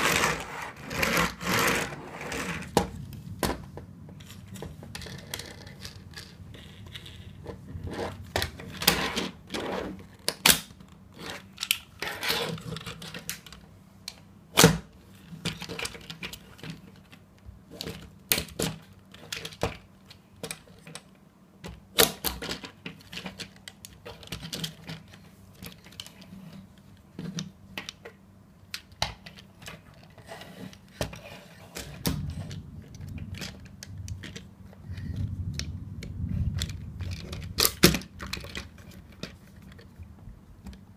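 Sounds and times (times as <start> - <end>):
plastic toy parts clicking and snapping: 10.2 - 12.0, 17.8 - 31.2, 31.8 - 39.9.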